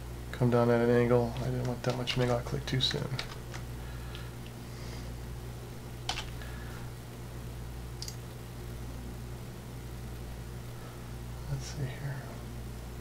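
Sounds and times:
steady low hum: 0:00.0 - 0:13.0
computer mouse clicking: 0:08.0 - 0:08.2.

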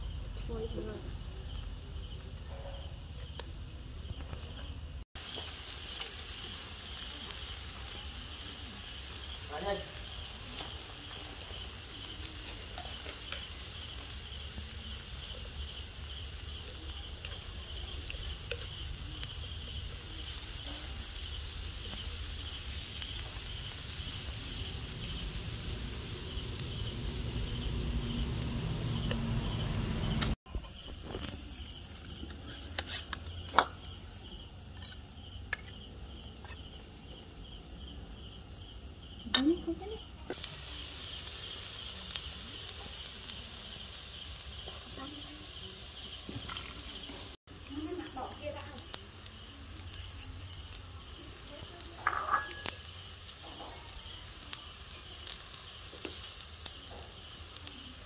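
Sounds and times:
insects chirping: 0:00.0 - 0:58.0
meat sizzling: 0:00.8 - 0:58.0
broth simmering: 0:03.2 - 0:37.2, 0:40.3 - 0:58.0
metal spoon clinking ceramic bowls: 0:52.0 - 0:52.8.

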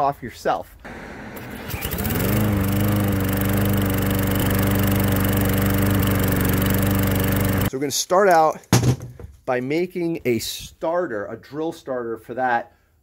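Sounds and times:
lawn mower engine running: 0:00.9 - 0:07.7
cordless drill spinning: 0:01.4 - 0:07.7.

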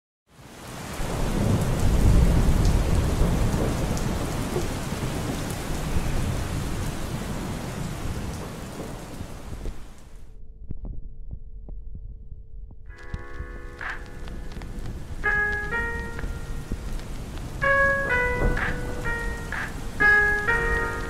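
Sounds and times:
steady rain: 0:00.3 - 0:10.2, 0:12.9 - 0:21.0
rolling thunder: 0:00.9 - 0:09.9, 0:13.2 - 0:21.0
water drops ticking: 0:12.9 - 0:21.0.

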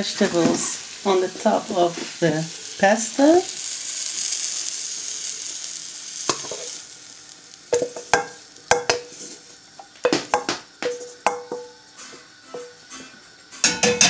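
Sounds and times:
faint sizzle: 0:00.0 - 0:14.0
spatula knocking on frying pan: 0:07.7 - 0:09.1, 0:09.8 - 0:11.8, 0:12.5 - 0:12.8, 0:13.6 - 0:14.0.

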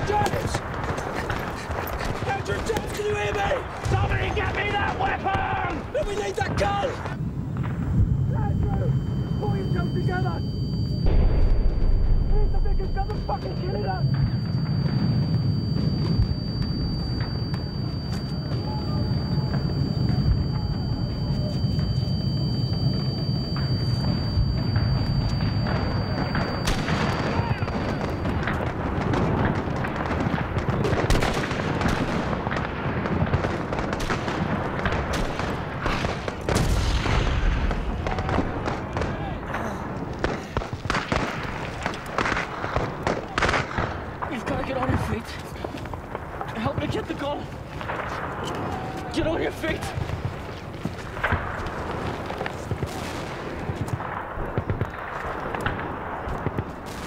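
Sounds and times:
continuous low rumble: 0:07.0 - 0:49.2
gunshots: 0:07.5 - 0:22.1, 0:22.8 - 0:57.0
heavy explosion boom: 0:07.5 - 0:44.4
rifle and machine-gun shots: 0:23.6 - 0:45.2, 0:49.3 - 0:57.0.

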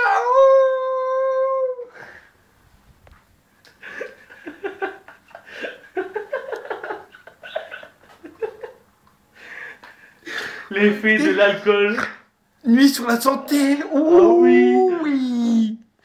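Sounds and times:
person crying out: 0:00.0 - 0:01.9, 0:13.6 - 0:15.8.

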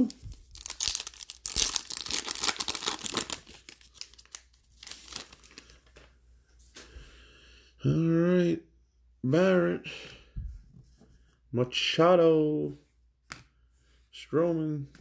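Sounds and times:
wrapper tearing and crinkling: 0:00.0 - 0:05.7.

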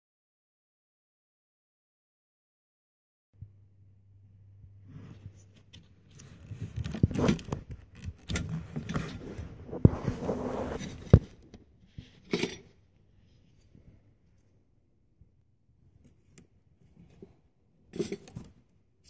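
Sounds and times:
rubber hoses rubbing and scraping: 0:04.8 - 0:13.8.

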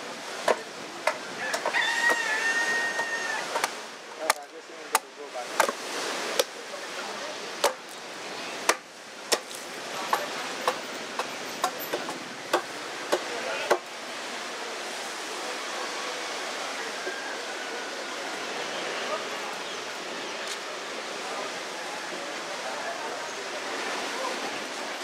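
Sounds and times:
blade chopping wood: 0:03.5 - 0:05.8, 0:07.6 - 0:07.9, 0:08.7 - 0:10.8.

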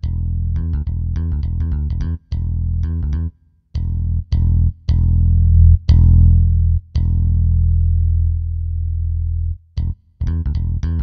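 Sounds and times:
synthesized bass notes: 0:00.0 - 0:11.0.

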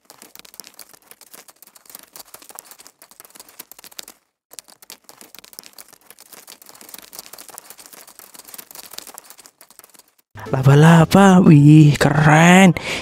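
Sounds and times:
fine crackling clicks: 0:00.0 - 0:10.3.

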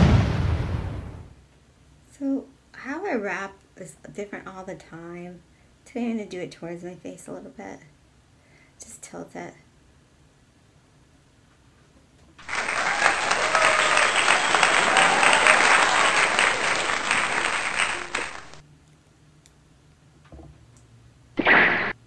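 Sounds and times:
applause: 0:12.4 - 0:18.6.

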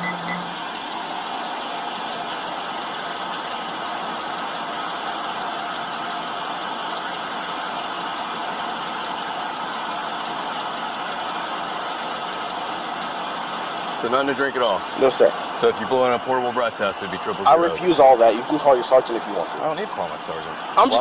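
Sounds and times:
car engine idling: 0:00.0 - 0:21.0.

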